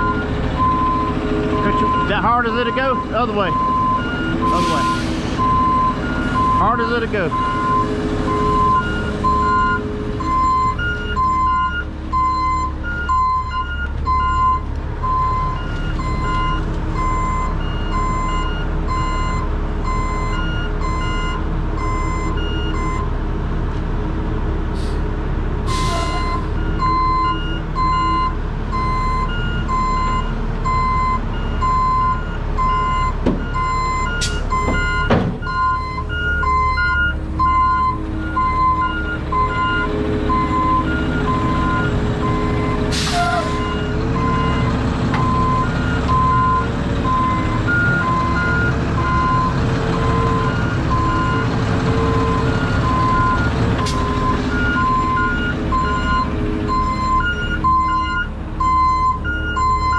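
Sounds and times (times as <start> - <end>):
truck reversing alarm beeping: 0.0 - 23.2, 25.6 - 59.9
diesel truck engines running: 0.0 - 59.9
air brake hiss: 4.5 - 5.4, 25.7 - 26.2, 42.9 - 43.7.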